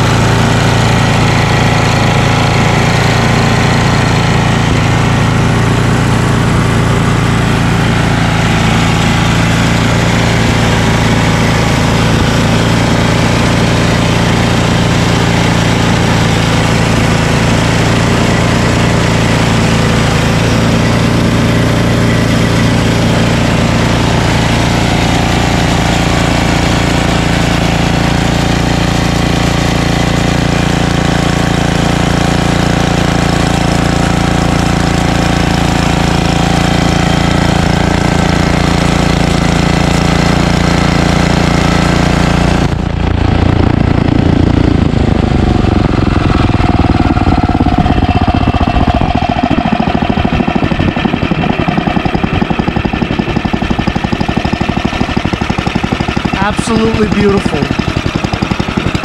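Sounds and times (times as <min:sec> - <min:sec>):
snowblower engine running: 0:00.0 - 0:59.0.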